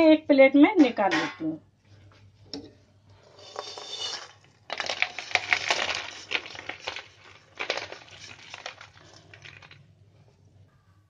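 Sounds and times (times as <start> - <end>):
small hard pieces rattling onto plate: 3.5 - 9.9.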